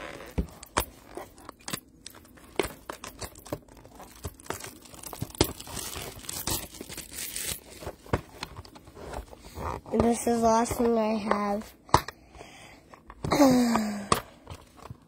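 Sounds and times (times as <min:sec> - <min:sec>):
packaging tearing and crinkling: 0:02.7 - 0:08.0.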